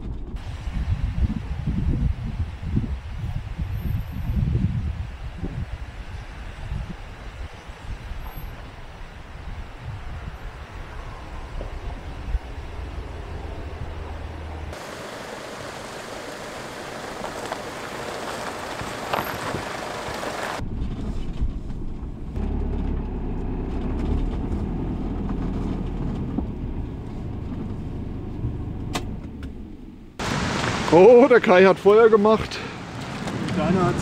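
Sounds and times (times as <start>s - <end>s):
low wind rumble on microphone: 0.0s - 30.2s
mountain stream rushing: 14.5s - 20.6s, 30.2s - 34.0s.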